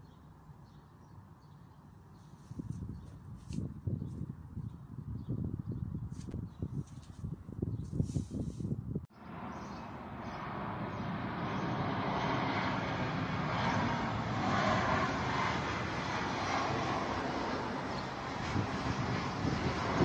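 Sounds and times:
jet airliner flying overhead: 0:09.1 - 0:20.0.

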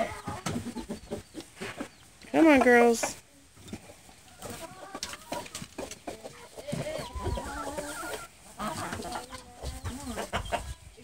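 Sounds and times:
hens clucking: 0:00.0 - 0:11.0.

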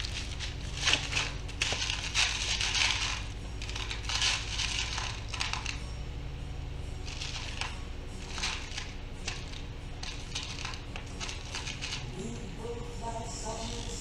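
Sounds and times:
hand rummaging through small parts: 0:00.0 - 0:05.9, 0:07.0 - 0:12.2.

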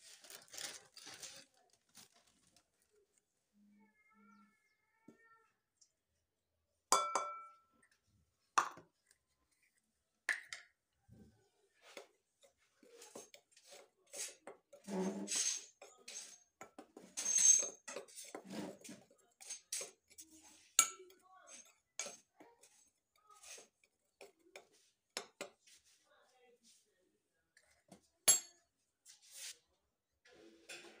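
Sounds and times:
clinks against glass bowl: 0:06.9 - 0:07.7, 0:20.8 - 0:22.2, 0:28.3 - 0:28.6
metal spoon stirring in glass bowl: 0:11.8 - 0:26.0, 0:27.6 - 0:28.6.

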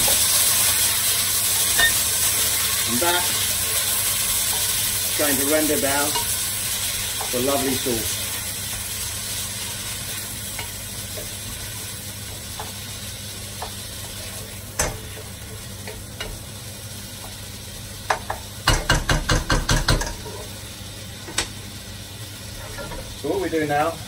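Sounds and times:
vegetables sizzling in a pot: 0:00.0 - 0:24.0
spoon knocking against pot: 0:18.1 - 0:20.2.

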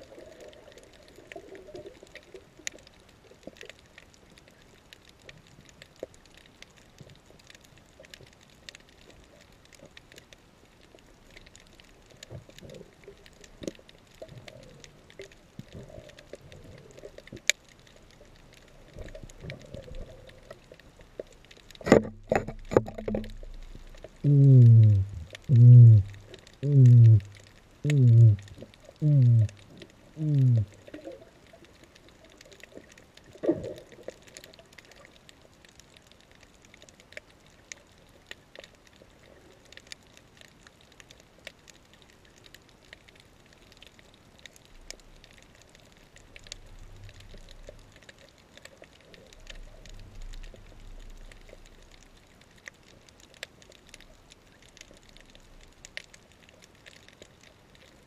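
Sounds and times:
faint reef clicks: 0:00.0 - 0:58.0
humpback whale song: 0:24.2 - 0:30.8.

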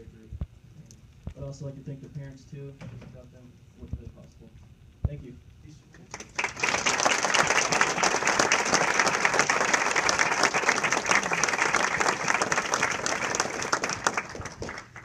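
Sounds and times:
crowd applauding: 0:06.1 - 0:15.0.

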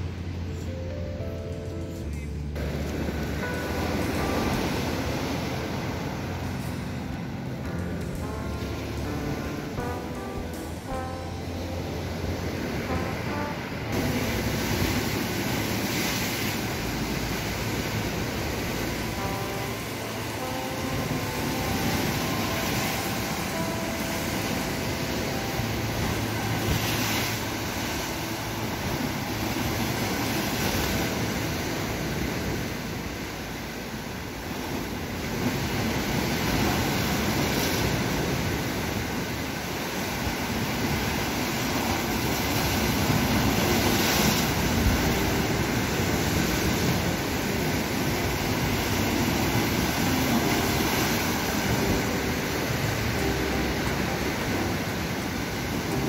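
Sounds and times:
sea waves splashing against a seawall: 0:14.0 - 0:56.0.

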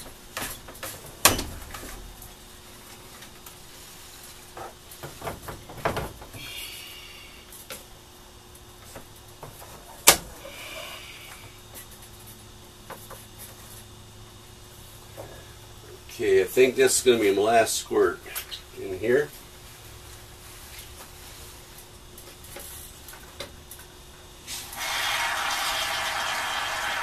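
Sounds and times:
spray can hissing and sputtering: 0:24.5 - 0:27.0.

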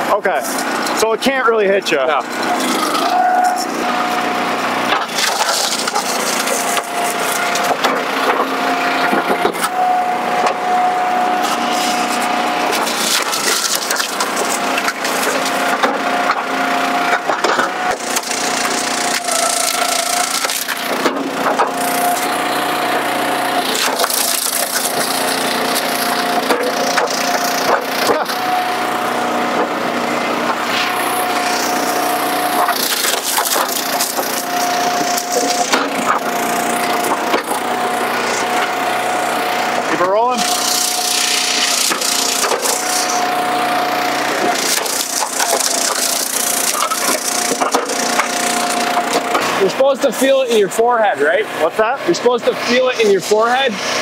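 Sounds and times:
log splitter whine: 0:00.0 - 0:54.0
wood cracking and splintering: 0:04.8 - 0:09.8, 0:11.4 - 0:28.5, 0:29.3 - 0:38.9, 0:39.6 - 0:49.7.

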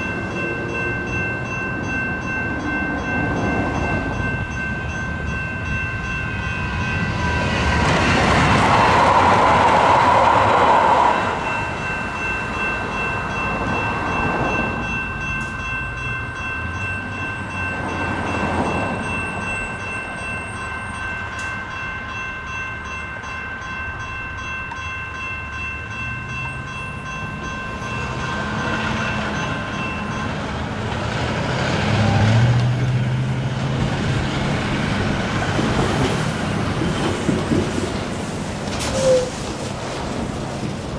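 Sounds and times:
crossing signal electronic bells: 0:00.0 - 0:08.8, 0:11.2 - 0:32.4
truck diesel engine accelerating: 0:30.6 - 0:35.3.

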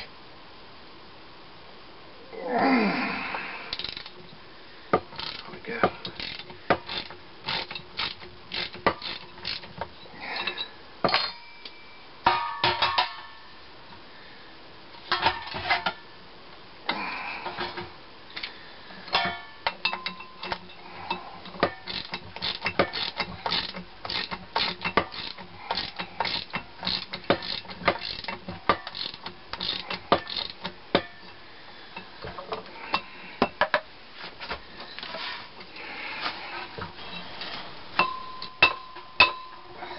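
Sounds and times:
metal tools clinking: 0:19.1 - 0:31.4.

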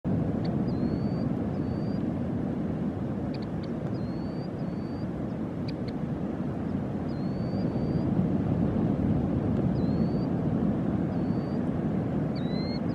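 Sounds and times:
ocean surf rumble: 0:00.1 - 0:12.9
high whistling bird calls: 0:00.6 - 0:02.0, 0:03.9 - 0:05.1, 0:07.1 - 0:08.1, 0:09.7 - 0:10.3, 0:11.1 - 0:11.6, 0:12.3 - 0:12.9.

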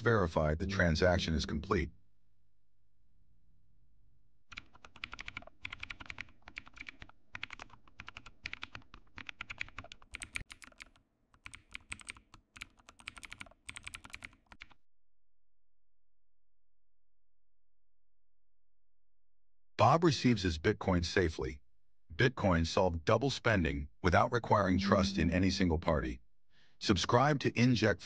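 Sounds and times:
keyboard typing: 0:04.5 - 0:14.7.

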